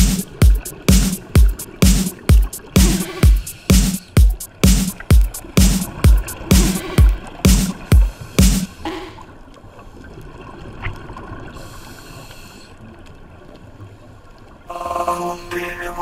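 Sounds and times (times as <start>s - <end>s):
electronic dance music: 0.0s - 8.8s, 14.7s - 16.0s.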